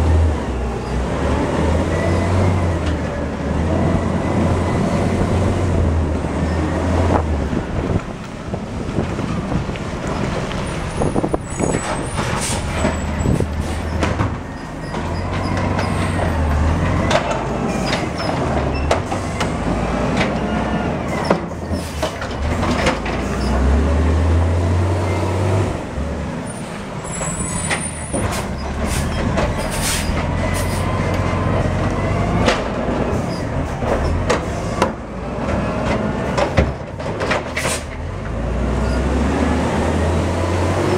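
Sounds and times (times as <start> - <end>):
garbage truck engine revving: 0.0 - 40.9
air brakes hissing: 11.1 - 13.9, 27.0 - 30.9, 37.6 - 38.0.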